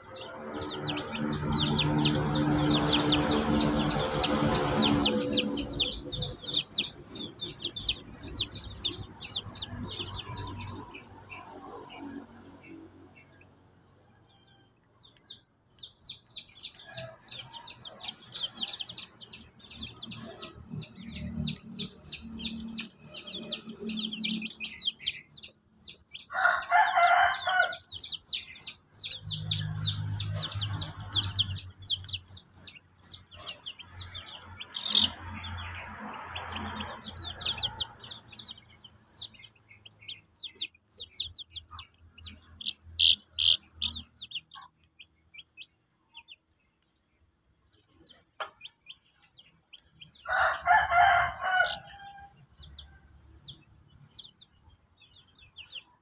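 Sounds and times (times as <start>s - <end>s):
chicks peeping: 0.0s - 56.0s
harsh chicken call: 26.3s - 28.5s, 50.2s - 52.3s.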